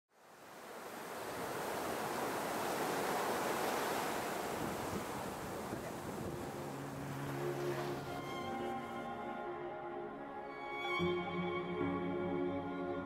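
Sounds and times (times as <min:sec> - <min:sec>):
rushing wind: 0:00.7 - 0:08.4.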